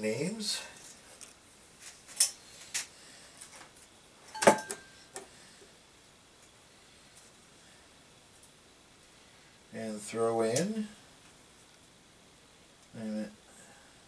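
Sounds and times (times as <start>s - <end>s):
metal bowl clink: 4.4s - 5.0s.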